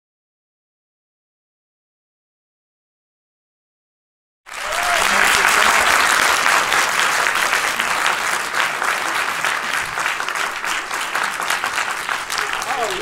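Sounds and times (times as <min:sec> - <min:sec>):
audience applauding: 0:04.5 - 0:13.0.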